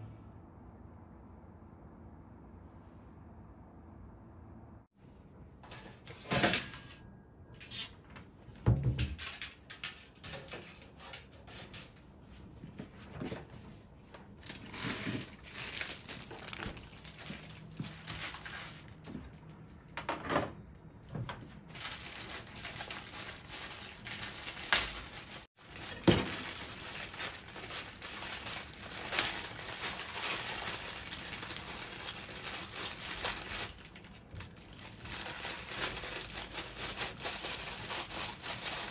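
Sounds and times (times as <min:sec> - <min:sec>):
plastic bag crinkling: 0:14.4 - 0:19.6, 0:21.7 - 0:38.9.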